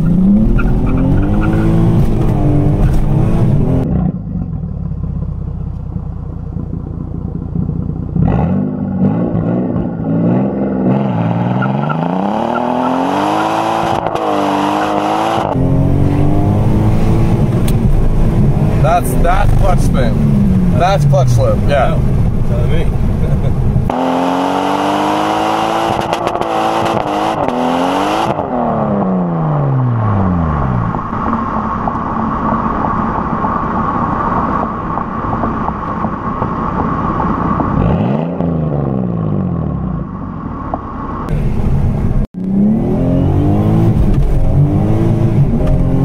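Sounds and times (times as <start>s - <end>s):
car engine revving hard: 0.0s - 4.4s, 8.2s - 31.0s, 37.2s - 40.2s, 42.4s - 46.0s.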